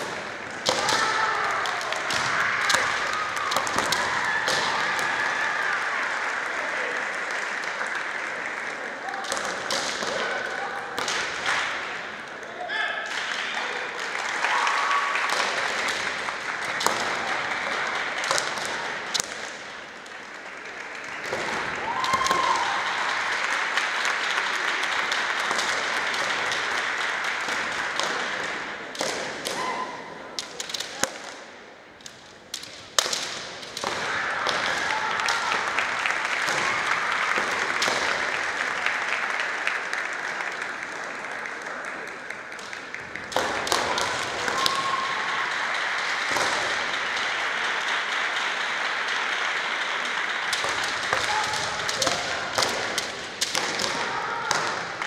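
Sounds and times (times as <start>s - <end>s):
bamboo swords striking: 0.0s - 5.0s
fencers shouting: 0.0s - 5.8s, 33.7s - 38.2s, 43.3s - 45.5s.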